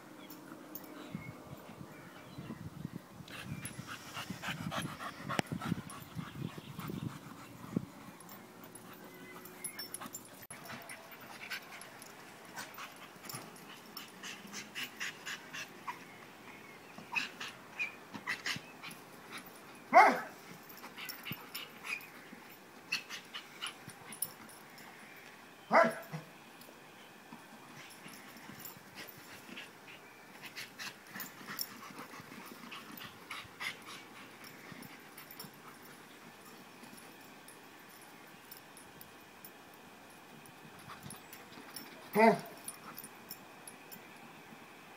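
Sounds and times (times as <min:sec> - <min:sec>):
dog panting: 0:03.3 - 0:15.8, 0:27.8 - 0:36.9
dog barking: 0:20.0 - 0:20.3, 0:25.7 - 0:26.2, 0:42.2 - 0:42.6.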